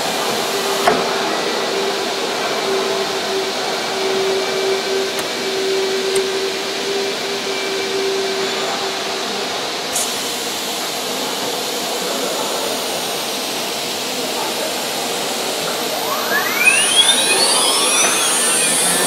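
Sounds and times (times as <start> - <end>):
router machine rushing noise: 15.3 - 19.0
spindle whine: 15.4 - 19.0.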